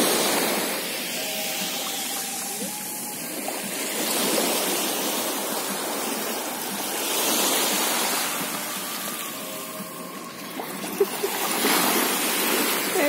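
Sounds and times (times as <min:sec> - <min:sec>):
small waves breaking on shore: 0:00.0 - 0:13.0.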